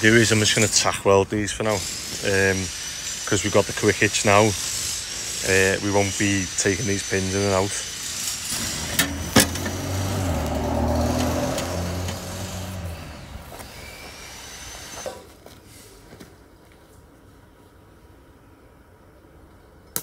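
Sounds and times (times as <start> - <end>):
vehicle engine passing: 8.6 - 13.9.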